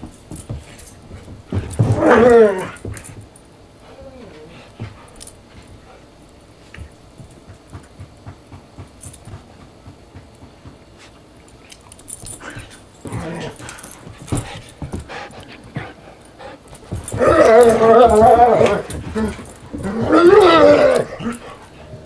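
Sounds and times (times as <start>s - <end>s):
dogs tussling: 0.0s - 3.4s, 11.6s - 22.0s
dogs scuffling: 0.0s - 3.5s, 4.5s - 22.0s.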